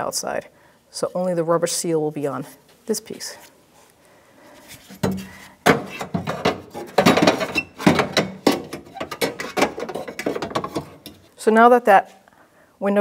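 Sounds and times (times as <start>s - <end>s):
metal rattling and clanking: 5.0s - 11.3s.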